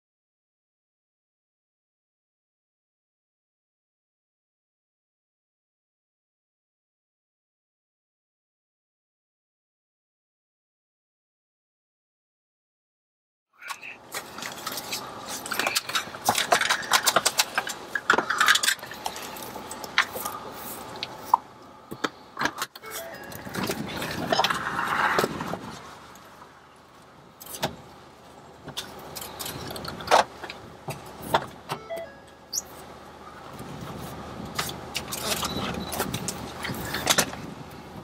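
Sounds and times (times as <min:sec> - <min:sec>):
rushing noise: 0:22.8 - 0:26.7.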